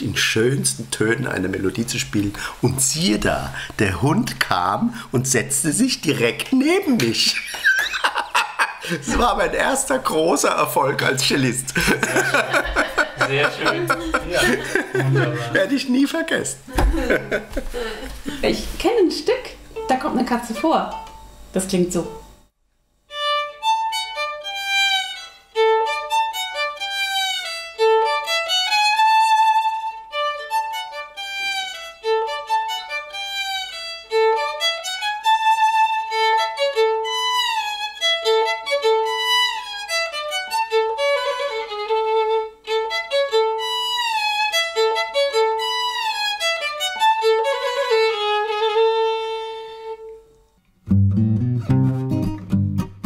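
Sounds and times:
solo violin with sliding notes: 23.1s - 50.5s.

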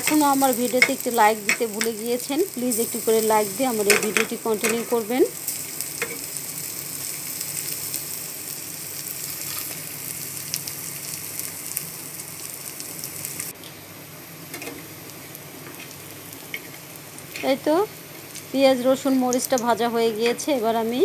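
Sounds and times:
vegetables sizzling in oil: 0.0s - 21.0s.

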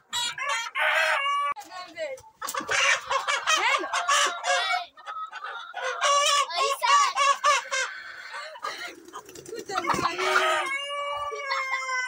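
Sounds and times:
rooster squawking: 9.8s - 12.0s.

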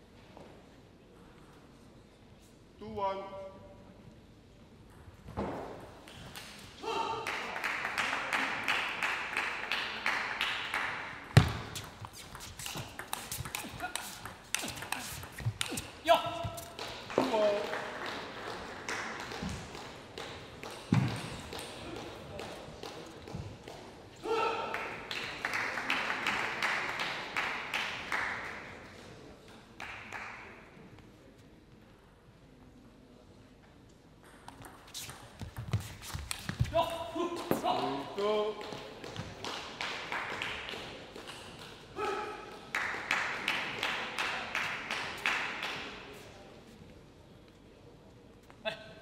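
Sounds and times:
spectators clapping in rhythm: 7.2s - 11.4s, 12.4s - 23.8s, 24.7s - 28.7s, 29.8s - 30.6s, 38.2s - 46.0s.

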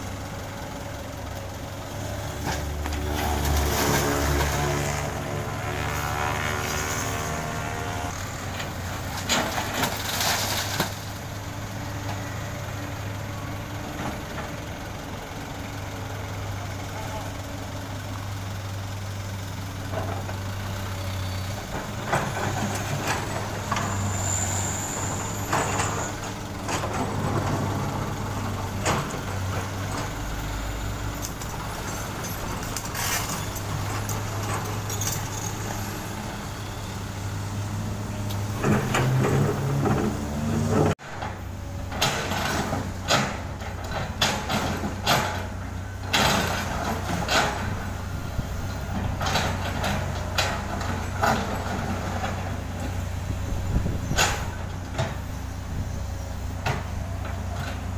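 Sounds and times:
diesel truck engines idling: 0.0s - 5.9s, 7.4s - 57.9s
excavator bucket scraping asphalt: 2.1s - 11.4s, 21.6s - 36.9s, 38.4s - 41.4s.

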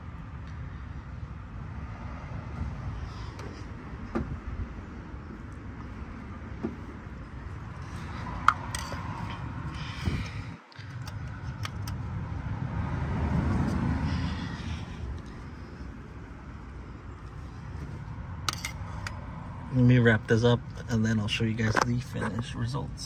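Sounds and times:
screwdriver clicking and scraping metal: 8.5s - 9.1s.

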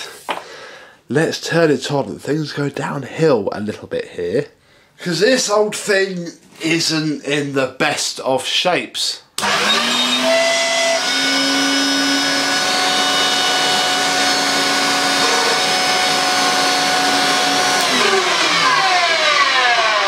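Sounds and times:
vacuum cleaner motor whine: 9.4s - 20.0s.

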